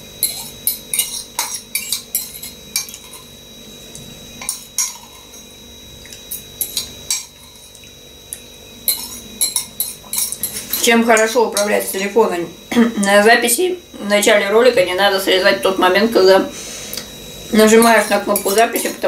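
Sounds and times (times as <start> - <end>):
spoon clinking on ceramic bowl: 0.2 - 3.3, 6.3 - 10.8.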